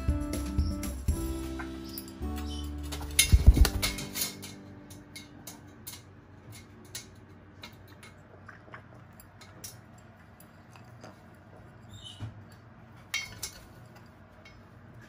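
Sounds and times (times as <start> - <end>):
parrot chick wings flapping: 2.8 - 4.1.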